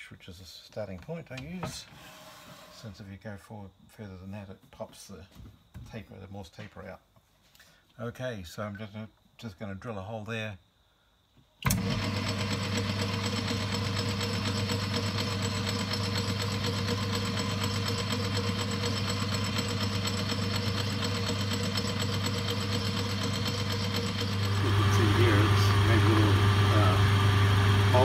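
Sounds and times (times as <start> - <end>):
drill feeding into steel: 11.6 - 28.0
lathe motor humming: 11.7 - 28.0.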